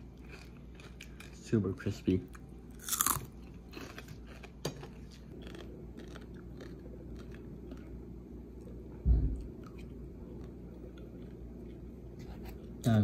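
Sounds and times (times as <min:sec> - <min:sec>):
crunching bite into crispy fish: 0:02.8 - 0:07.8.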